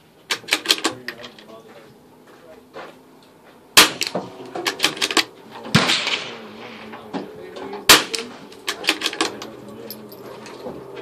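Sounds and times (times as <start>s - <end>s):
rifle gunshots: 3.8s - 6.6s, 7.9s - 9.3s.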